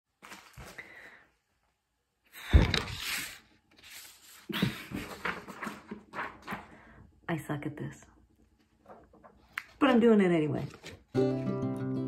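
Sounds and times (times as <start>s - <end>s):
rustling and handling noise: 0.1s - 1.8s, 2.6s - 6.9s, 8.5s - 11.2s.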